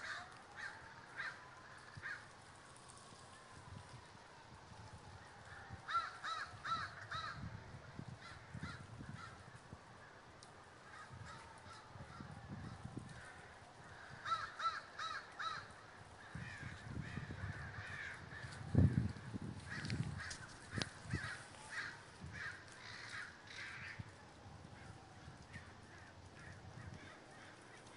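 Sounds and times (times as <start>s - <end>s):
crows cawing: 0.0s - 2.4s, 5.5s - 7.5s, 8.2s - 9.6s, 10.8s - 12.4s, 13.1s - 24.2s, 24.8s - 27.9s.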